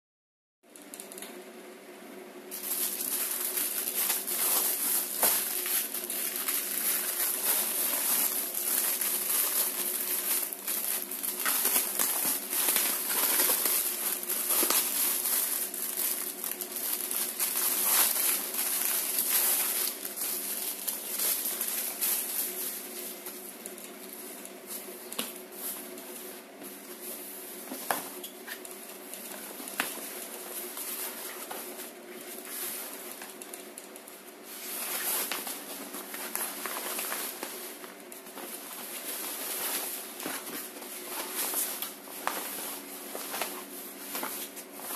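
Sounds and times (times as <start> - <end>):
plastic bag crinkling: 2.5 - 44.9
cloth rustling: 34.4 - 44.9.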